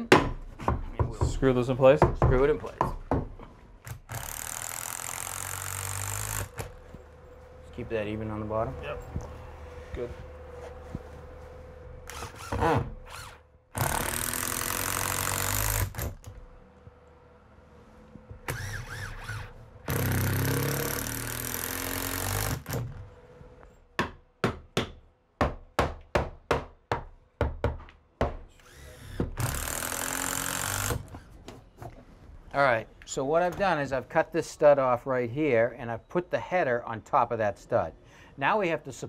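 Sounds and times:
cordless drill driving screws: 4.0 - 6.8, 12.0 - 16.2, 18.5 - 22.9, 28.6 - 31.2.

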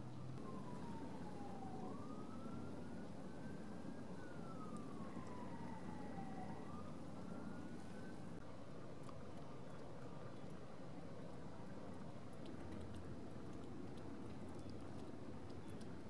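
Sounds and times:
distant siren wailing: 0.2 - 8.4.

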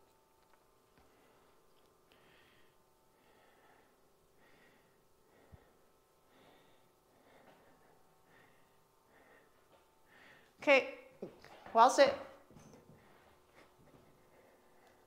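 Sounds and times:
faint regular breathing: 1.0 - 10.6, 12.8 - 15.0.

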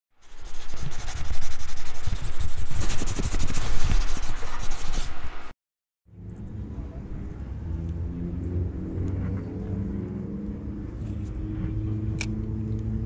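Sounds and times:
rough scraping rush with crackle: 0.2 - 5.2
low outdoor rumble: 6.1 - 13.0.

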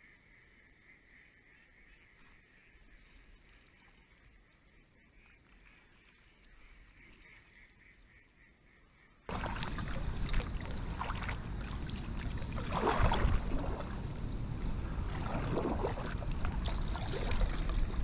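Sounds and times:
kayak paddle splashing: 9.3 - 18.0
wind rumble on microphone: 9.3 - 18.0.

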